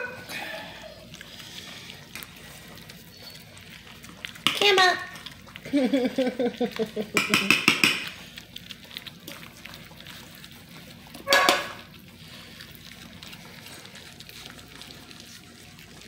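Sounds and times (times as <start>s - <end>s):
puppies lapping and smacking: 0.0s - 16.0s
clinks against metal pan: 7.2s - 8.0s, 11.3s - 11.8s.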